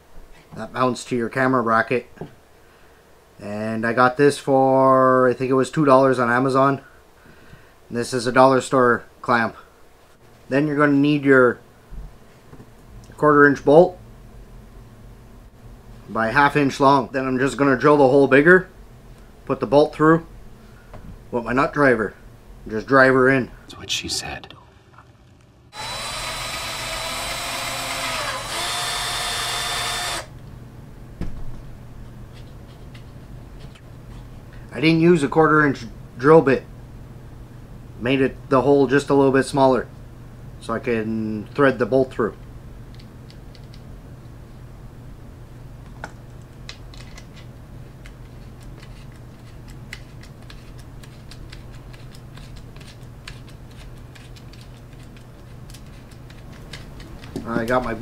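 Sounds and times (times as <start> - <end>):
steady low hum: 0.0 - 58.0
cordless drill boring plastic: 25.7 - 30.3.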